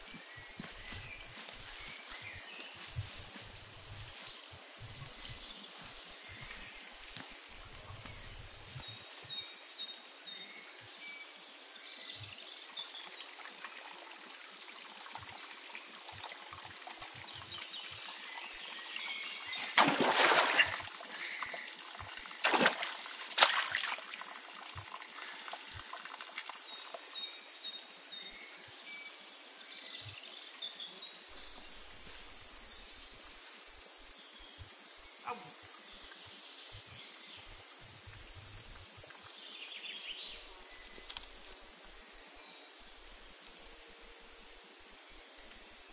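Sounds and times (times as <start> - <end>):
stream water trickling: 8.8 - 28.3, 35.7 - 45.9
loud water splashes: 19.6 - 21.7, 22.4 - 24.2.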